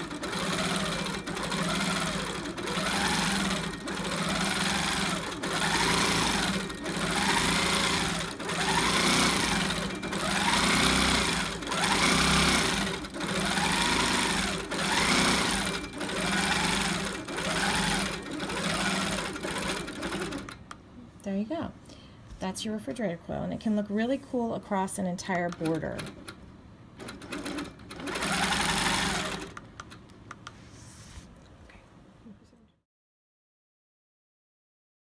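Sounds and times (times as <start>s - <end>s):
quilting machine motor stitching: 0.0s - 20.6s, 27.0s - 29.6s.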